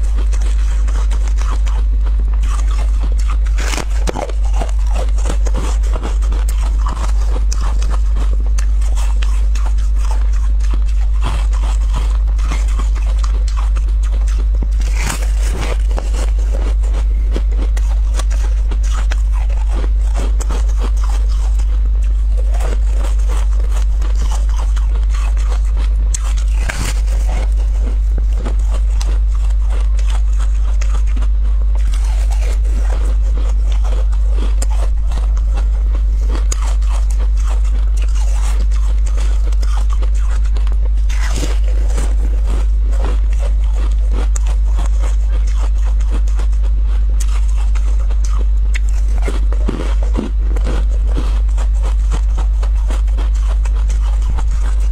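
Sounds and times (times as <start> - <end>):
crunching frozen ice: 0.0 - 54.9
steady low hum: 0.0 - 54.9.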